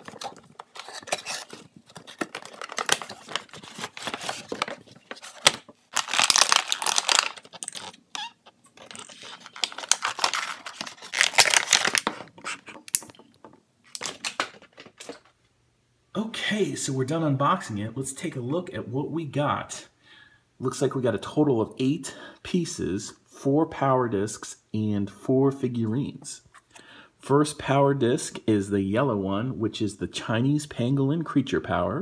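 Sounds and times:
packaging crinkling and tearing: 0:00.0 - 0:13.1.

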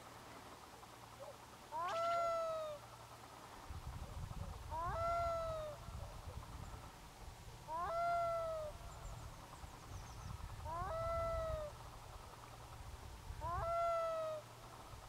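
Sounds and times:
loon crying: 0:01.7 - 0:02.8, 0:04.7 - 0:05.8, 0:07.7 - 0:08.8, 0:10.6 - 0:11.7, 0:13.4 - 0:14.5.

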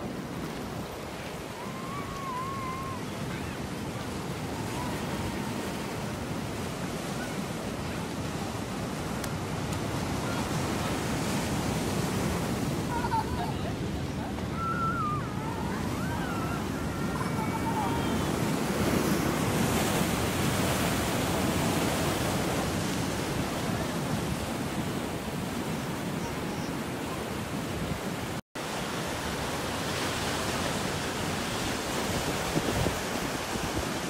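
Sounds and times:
wind on microphone: 0:30.0 - 0:34.0.

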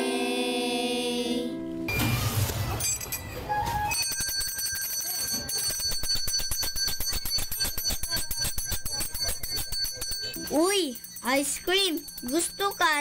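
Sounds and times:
vendor's bell ringing rapidly: 0:02.7 - 0:13.0.

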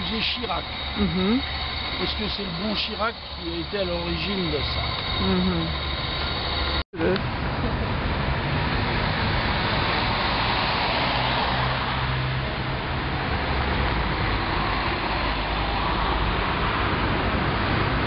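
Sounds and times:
low traffic rumble: 0:00.0 - 0:18.0
passing cars: 0:00.0 - 0:18.0.

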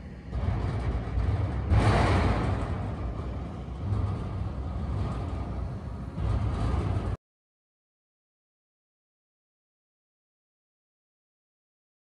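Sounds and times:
excavator diesel engine running: 0:00.0 - 0:07.2.

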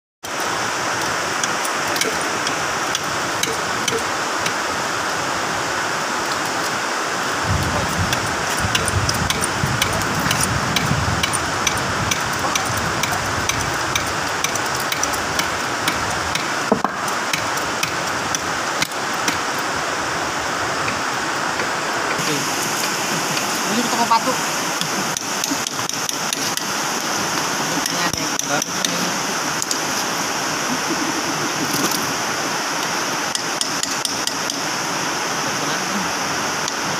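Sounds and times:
steady hiss: 0:00.2 - 0:36.9
hydraulic jack clicking: 0:08.1 - 0:19.4.

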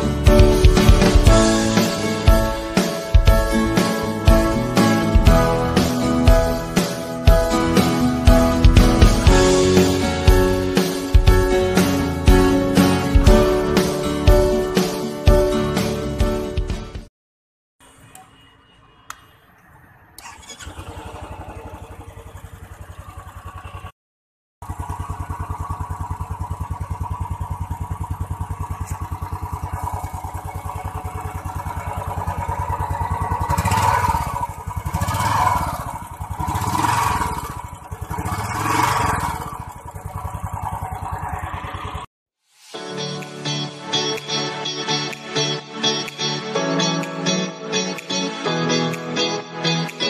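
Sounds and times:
motorcycle engine starting and idling: 0:00.0 - 0:13.8, 0:19.6 - 0:24.0, 0:24.6 - 0:42.1
throttle blips revving: 0:24.6 - 0:42.1.

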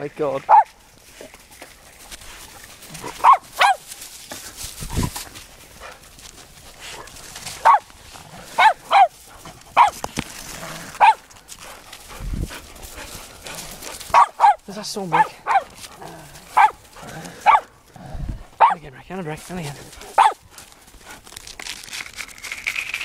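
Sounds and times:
dog barking: 0:00.5 - 0:00.7, 0:03.1 - 0:03.8, 0:07.6 - 0:07.8, 0:08.6 - 0:09.1, 0:09.8 - 0:10.0, 0:11.0 - 0:11.2, 0:14.1 - 0:15.7, 0:16.5 - 0:16.8, 0:17.4 - 0:17.7, 0:18.6 - 0:18.8, 0:20.2 - 0:20.4.

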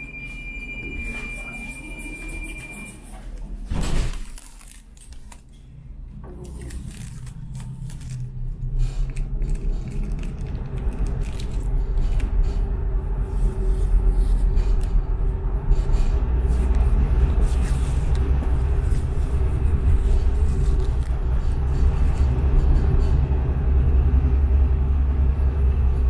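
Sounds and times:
steady high tone: 0:00.0 - 0:03.4
tram wheels and motors rumbling: 0:05.0 - 0:26.0.

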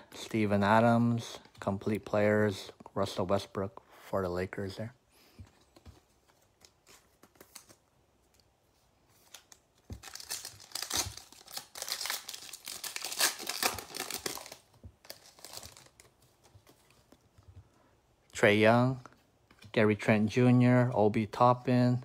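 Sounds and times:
wrapper crinkling and tearing: 0:09.3 - 0:16.2.

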